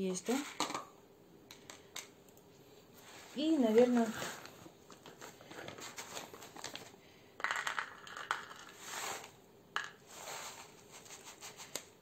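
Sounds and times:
plastic snack bag crinkling: 4.9 - 10.7.

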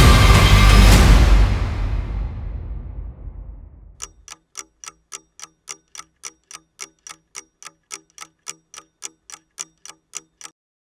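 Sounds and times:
clock ticking: 4.0 - 10.6.

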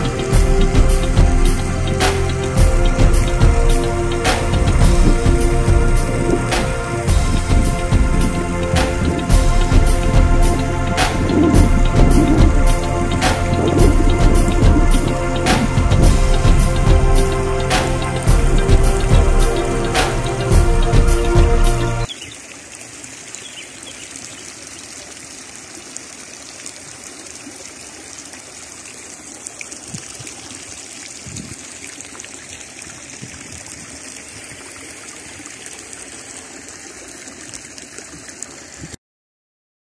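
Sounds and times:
background music: 0.0 - 22.1
fountain water trickling: 0.0 - 39.0
soft low thumps: 4.6 - 17.3, 18.2 - 19.6.

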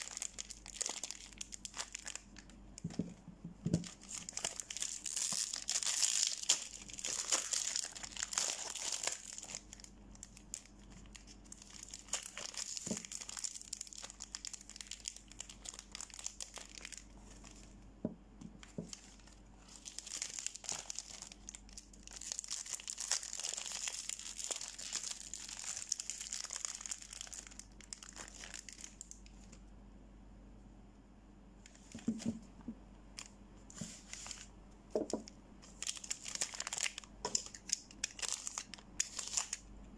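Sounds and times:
wrappers tearing and crinkling: 0.0 - 2.6, 3.8 - 17.7, 18.7 - 29.2, 35.6 - 39.6.

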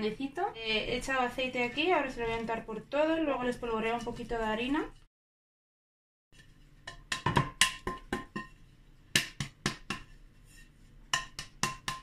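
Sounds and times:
hands tapping glass dish: 11.2 - 12.0.

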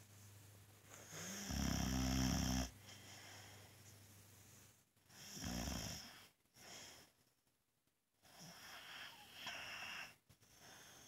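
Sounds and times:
dog snoring: 1.0 - 2.8, 5.1 - 6.3.

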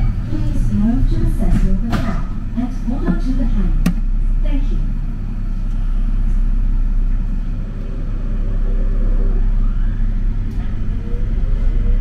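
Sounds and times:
light-rail car rumble: 0.0 - 12.0
faint motor whine: 2.6 - 12.0.

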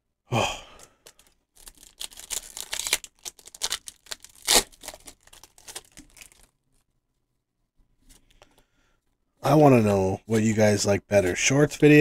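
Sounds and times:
foil wrapper crinkling and tearing: 0.8 - 6.6.

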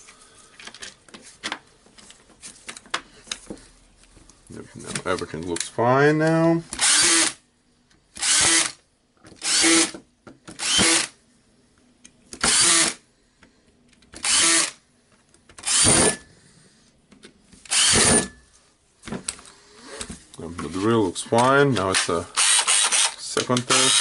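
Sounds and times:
power screwdriver whirring: 6.7 - 7.4, 8.2 - 8.8, 9.4 - 9.9, 10.6 - 11.2, 12.4 - 13.0, 14.2 - 14.8, 15.6 - 16.2, 17.7 - 18.4, 22.4 - 24.0.

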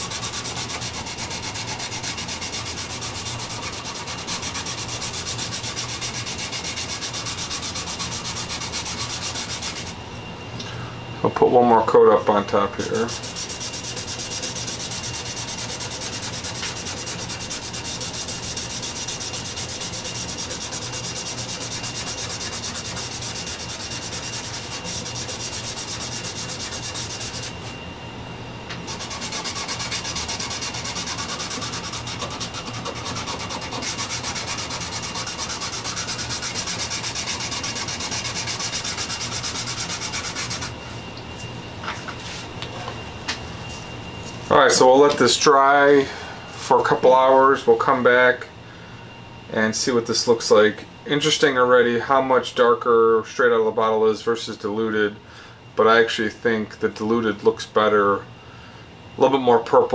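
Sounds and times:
glove scrubbing on wood: 0.0 - 9.9, 13.0 - 27.6, 28.9 - 40.7.

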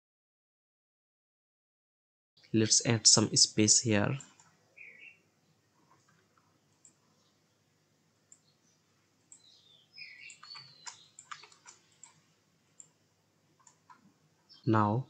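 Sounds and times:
faint computer mouse clicks: 5.9 - 7.0, 8.3 - 8.5, 9.2 - 9.5, 10.2 - 12.2.

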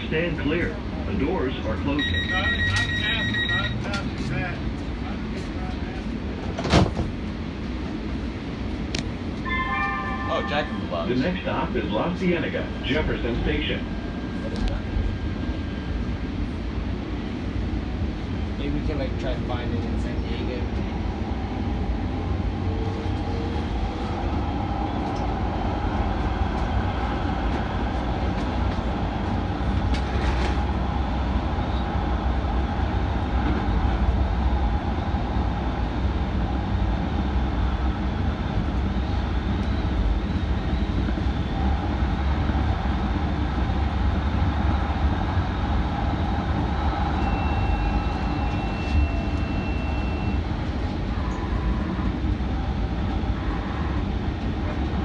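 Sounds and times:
rumble of train wheels: 0.0 - 55.0
brief high steady tone: 9.4 - 10.9, 47.2 - 50.4
faint high tones: 9.5 - 10.9.

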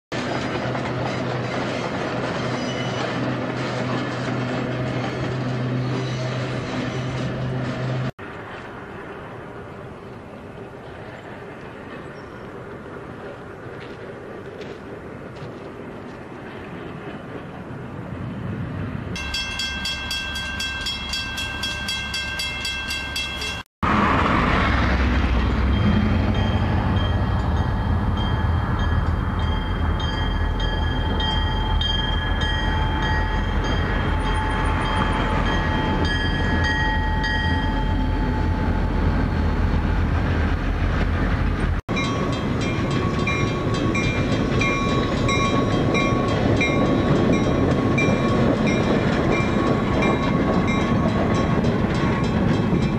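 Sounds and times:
locomotive engine rumble: 0.1 - 52.9
crossing signal bell ringing: 19.2 - 23.7, 25.3 - 39.6, 41.9 - 52.9.

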